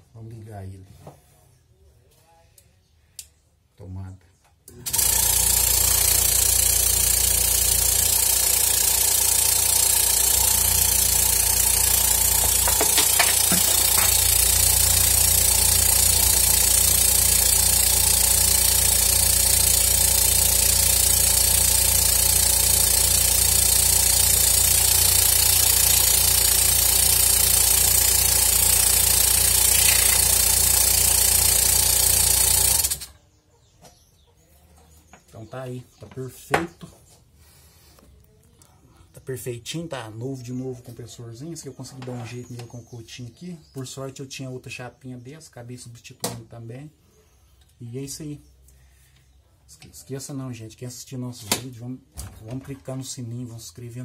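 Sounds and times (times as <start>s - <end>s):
air compressor running: 4.7s - 33.2s.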